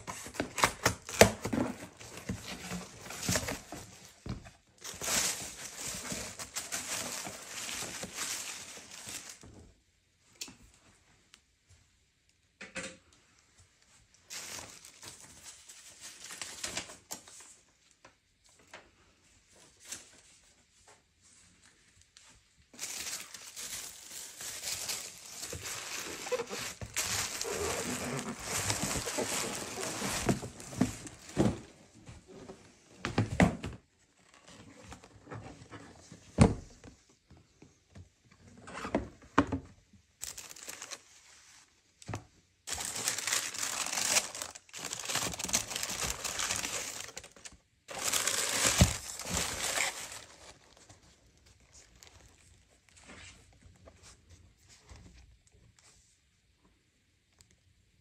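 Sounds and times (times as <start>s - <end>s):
tissue paper rustling: 0.0s - 9.5s, 14.2s - 17.6s, 21.2s - 31.7s, 40.2s - 41.9s, 42.7s - 54.7s.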